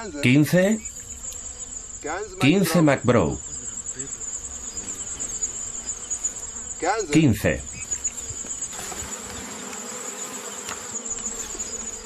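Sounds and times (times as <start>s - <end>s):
high-pitched insect buzzing: 0.0s - 12.0s.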